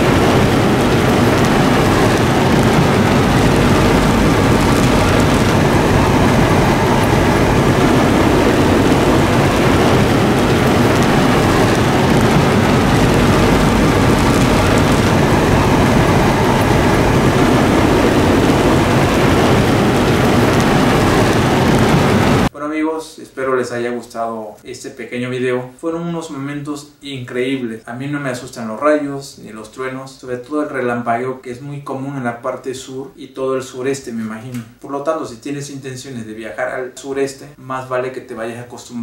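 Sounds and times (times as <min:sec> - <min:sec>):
car engine: 0:00.0 - 0:22.5
heavy rain on car roof: 0:00.0 - 0:22.5
tyres on wet dirt track: 0:00.0 - 0:22.5.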